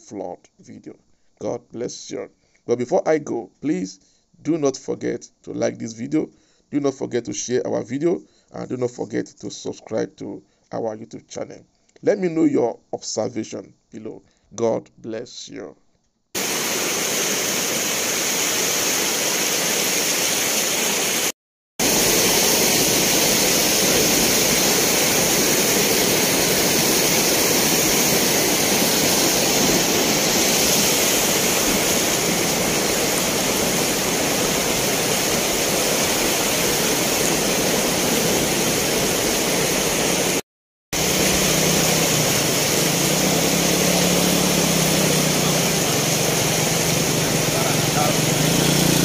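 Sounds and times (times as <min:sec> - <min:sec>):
loud rushing noise: 0:41.0 - 0:49.0
low wavering engine hum: 0:41.0 - 0:49.0.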